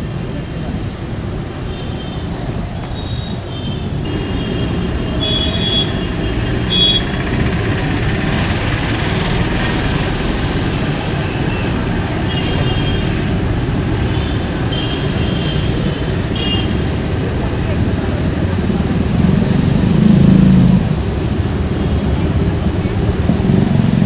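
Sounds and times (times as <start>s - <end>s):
passing motorbikes and scooters: 0.0s - 24.0s.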